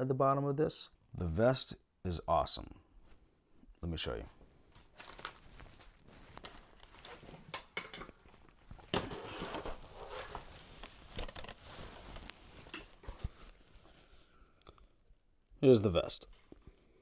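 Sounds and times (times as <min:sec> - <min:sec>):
straps and padding rustling: 0:04.2 - 0:14.3.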